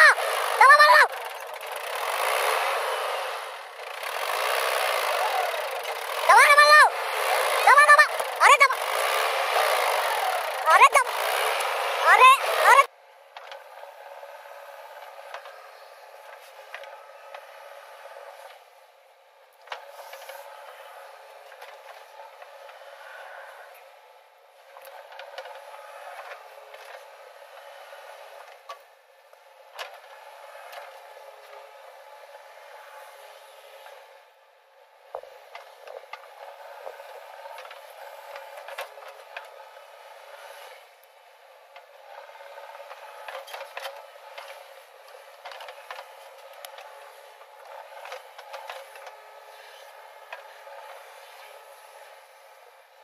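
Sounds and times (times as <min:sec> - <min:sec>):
diesel engine running: 0:00.0 - 0:53.0.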